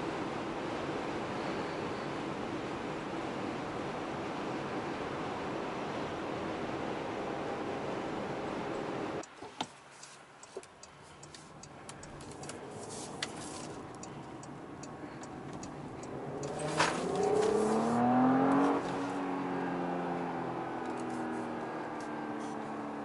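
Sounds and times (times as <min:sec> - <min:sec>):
low road noise: 0:00.0 - 0:23.0
turn signal ticking: 0:09.2 - 0:18.9
car engine accelerating: 0:11.7 - 0:23.0.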